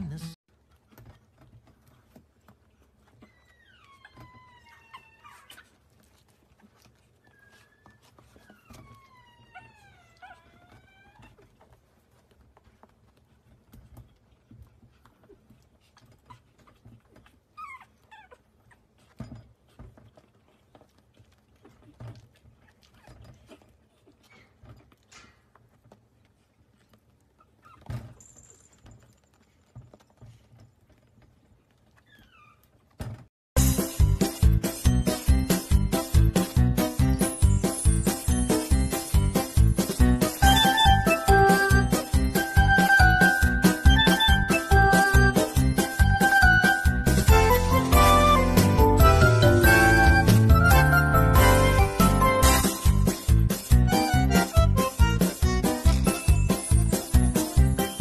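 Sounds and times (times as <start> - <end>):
puppy squeak: 3.0 - 5.8, 6.8 - 11.7, 16.0 - 19.5, 27.4 - 28.2, 32.0 - 32.8, 40.3 - 52.9
puppy howling: 3.2 - 5.8, 7.3 - 11.5
loud music: 33.6 - 57.9.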